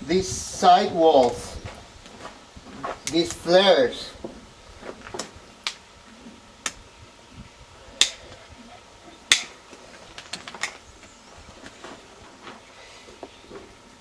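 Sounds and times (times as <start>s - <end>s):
hoof nippers snapping: 5.2s - 5.8s, 6.6s - 6.8s, 8.0s - 8.4s, 9.3s - 10.8s.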